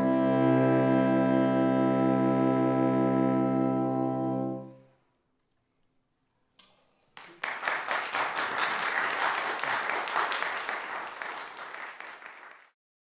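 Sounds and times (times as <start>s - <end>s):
audience applauding: 7.2s - 12.8s.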